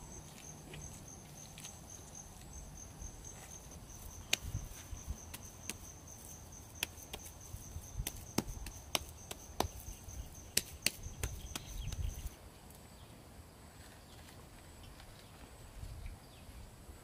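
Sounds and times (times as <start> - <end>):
sharp knocks: 8.0 - 12.3.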